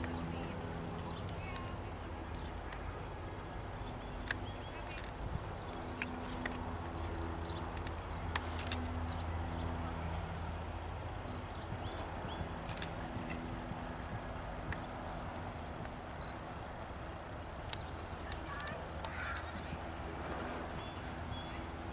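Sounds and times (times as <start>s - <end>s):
birds chirping: 0.0s - 21.9s
steady low hum: 0.0s - 21.9s
sharp clicks: 7.7s - 9.0s, 17.6s - 19.7s
horse hoofbeats on grass: 10.9s - 21.9s.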